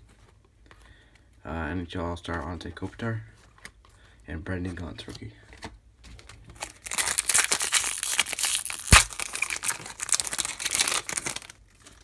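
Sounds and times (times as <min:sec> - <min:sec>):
foil wrapper tearing and crinkling: 0:06.6 - 0:12.0.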